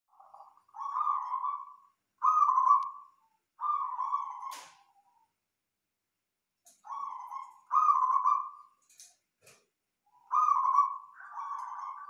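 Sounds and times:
dove cooing: 0.1 - 5.2, 6.8 - 8.7, 10.1 - 12.0.

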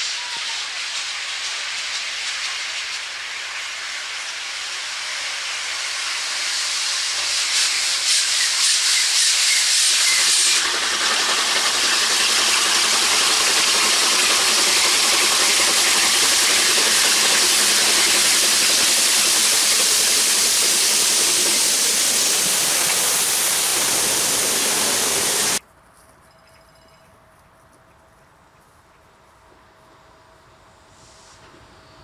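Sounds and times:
steam hissing from locomotive: 0.0 - 25.6, 30.7 - 32.0
faint outdoor background: 25.0 - 32.0.

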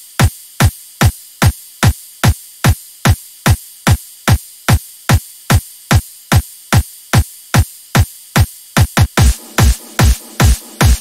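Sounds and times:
electronic kick drum beating: 0.0 - 11.0
faint high hiss: 0.0 - 11.0.

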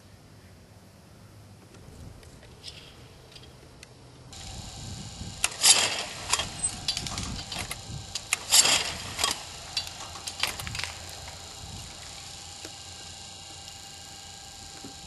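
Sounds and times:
clay trap machine clicks and clacks: 5.4 - 13.8.

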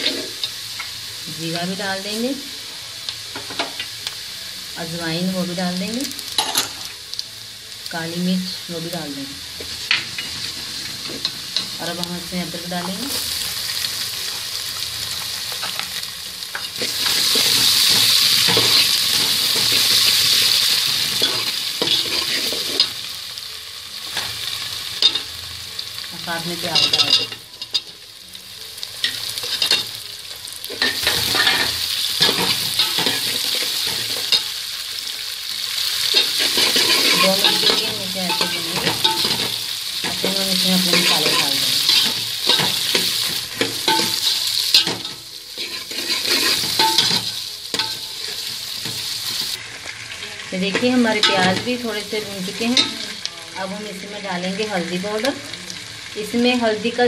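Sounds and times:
spices sizzling in hot oil: 0.0 - 57.0
metal ladle stirring and scraping: 36.2 - 39.5, 40.9 - 47.2.

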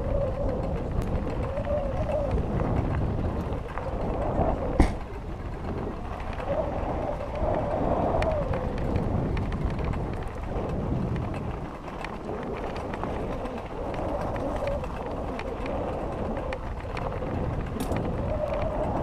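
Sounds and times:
small clicks and rattles: 0.0 - 19.0
bike tyres crunching gravel: 0.1 - 19.0.

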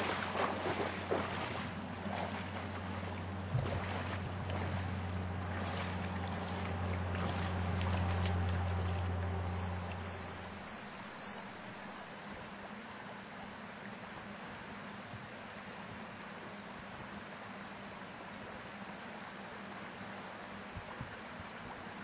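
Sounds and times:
river water rushing: 0.0 - 22.0
steady low hum: 0.0 - 22.0.

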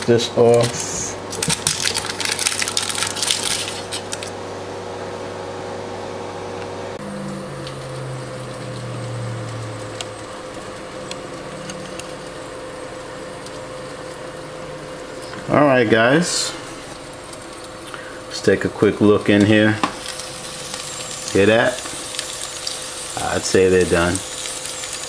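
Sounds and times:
appliance hum: 0.0 - 25.0
convection fan whirring: 0.0 - 25.0
crinkling in air fryer basket: 0.4 - 4.4.

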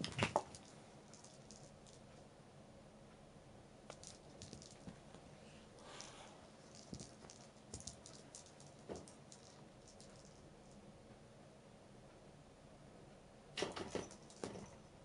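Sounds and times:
cat batting toy ball on carpet: 0.0 - 2.0, 3.9 - 5.2, 5.9 - 10.4.

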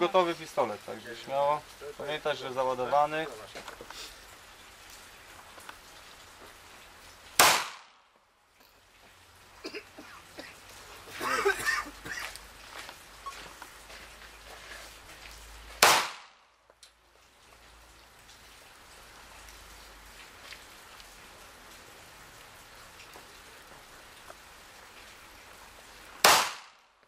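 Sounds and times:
pistol shots: 7.4 - 8.0, 15.8 - 16.4, 26.2 - 26.8.

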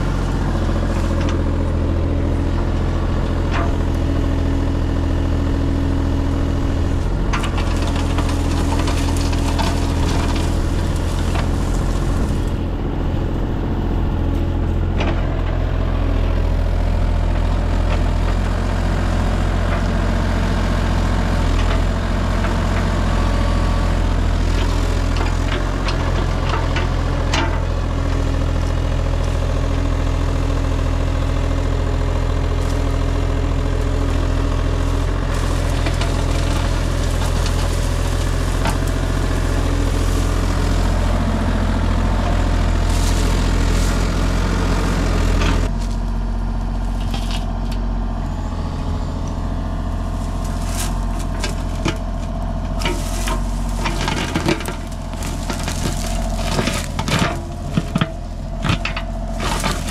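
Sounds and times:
excavator diesel engine running: 0.0 - 59.9
brush snapping and crackling: 32.5 - 47.6, 50.0 - 59.9.

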